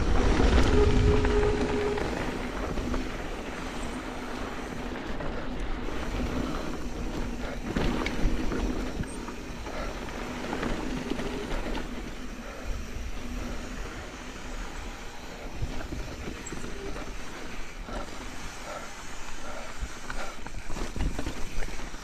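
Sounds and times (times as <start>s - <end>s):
wind rumble on microphone: 0.0s - 9.2s
bike chain and frame rattling: 0.0s - 22.0s
bike tyres rolling on dirt trail: 0.0s - 22.0s.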